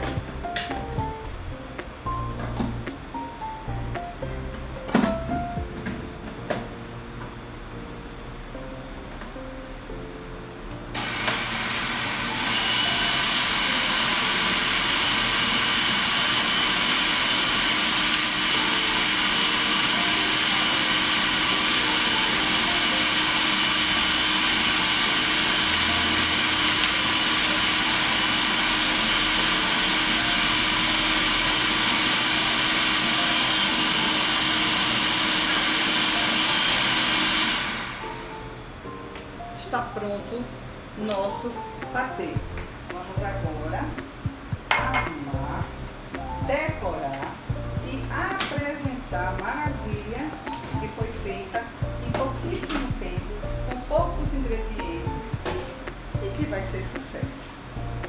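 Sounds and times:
food processor motor whine: 10.9 - 38.6.

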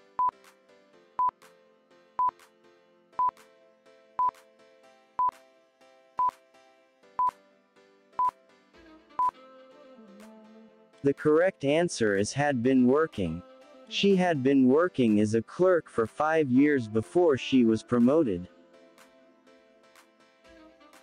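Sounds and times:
soft background music: 0.0 - 21.0.

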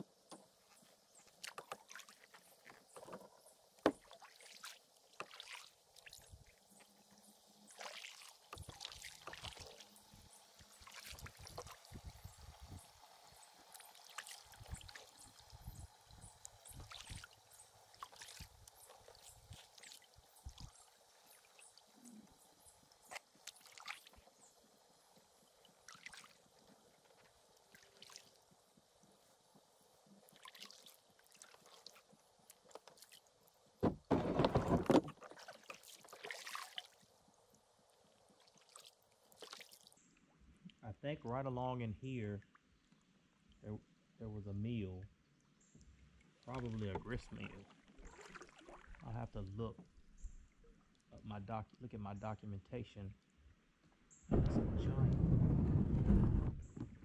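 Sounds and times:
small water splashes: 0.0 - 29.2, 30.0 - 33.8, 34.4 - 40.2, 45.8 - 51.1
paddle dipping and dripping water: 0.0 - 40.8, 42.4 - 43.6, 45.2 - 51.8
paddle knocking against hull: 3.0 - 4.1, 33.8 - 35.3, 54.3 - 57.0
loud thump: 54.3 - 57.0.

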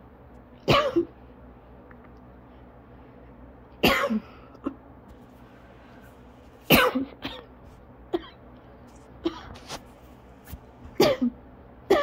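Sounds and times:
person coughing: 0.7 - 1.2, 3.8 - 4.8, 6.7 - 8.4, 9.2 - 9.6, 11.0 - 12.0.

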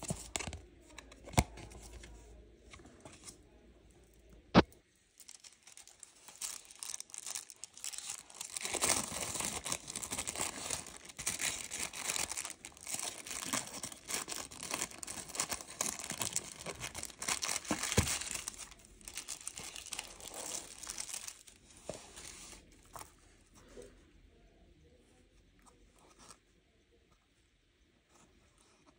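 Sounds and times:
tissue paper crinkling: 5.1 - 22.6.

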